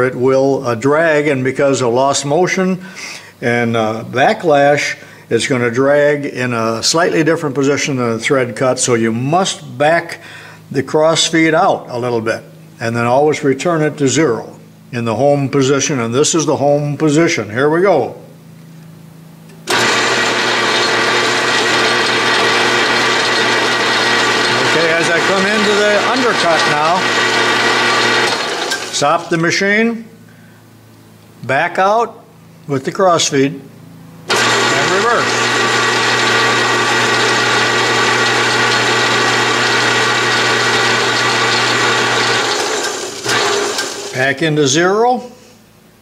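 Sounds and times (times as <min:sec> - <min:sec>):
lathe switching on: 0:19.5 - 0:29.3, 0:34.3 - 0:44.2
lathe running: 0:19.7 - 0:29.4, 0:34.3 - 0:44.2.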